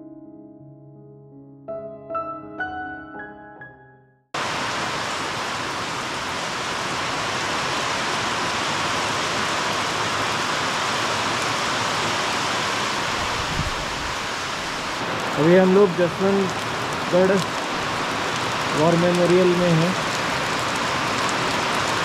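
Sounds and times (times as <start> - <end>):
piano music: 0.0 - 4.4
heavy rain pouring: 4.4 - 22.0.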